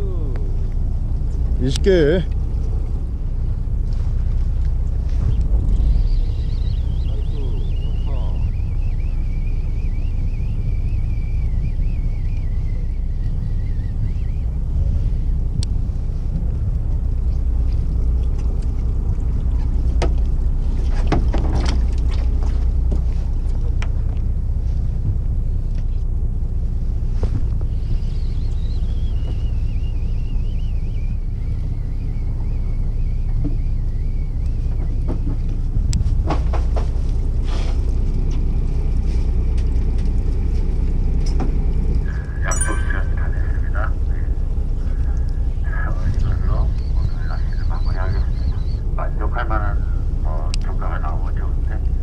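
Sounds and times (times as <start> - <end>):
boat engine rumbling: 0.0 - 52.0
wind on microphone: 2.7 - 24.1, 34.6 - 38.8, 44.7 - 48.9.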